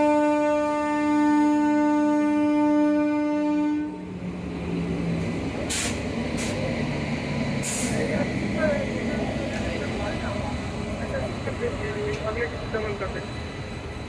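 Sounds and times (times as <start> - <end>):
train horn blast: 0.0 - 4.1
train rumble: 0.0 - 14.0
air hisses: 5.7 - 6.7, 7.6 - 8.1.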